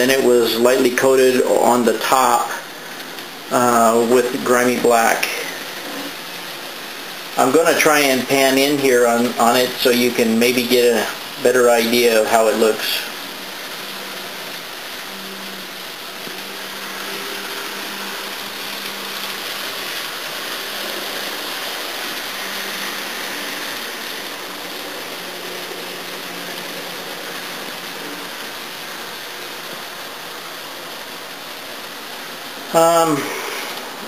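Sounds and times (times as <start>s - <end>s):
room noise hiss: 0.0s - 34.0s.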